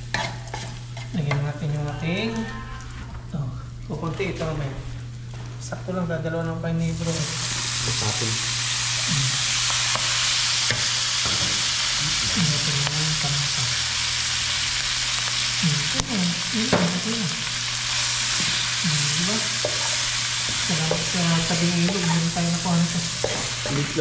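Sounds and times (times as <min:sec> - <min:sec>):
fish sizzling in hot oil: 0:06.9 - 0:24.0.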